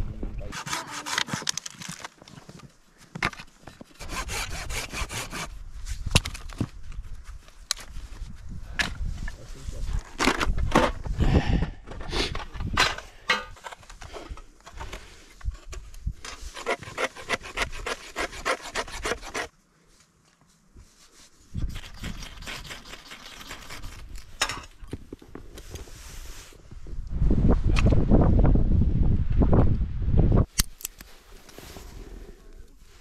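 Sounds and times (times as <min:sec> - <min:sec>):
knife shaving wood: 0:16.4 - 0:19.5, 0:21.6 - 0:24.4.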